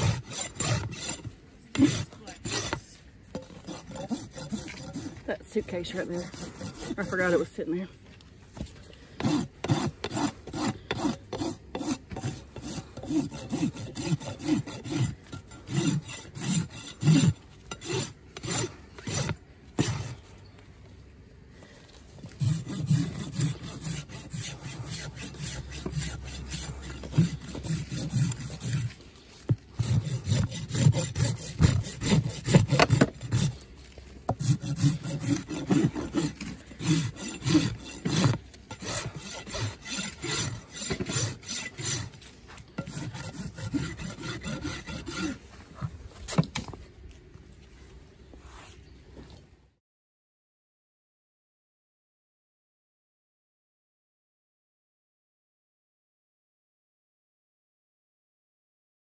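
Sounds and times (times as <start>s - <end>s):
rasp scraping hoof: 0.0s - 7.9s, 8.5s - 20.6s, 21.6s - 46.8s.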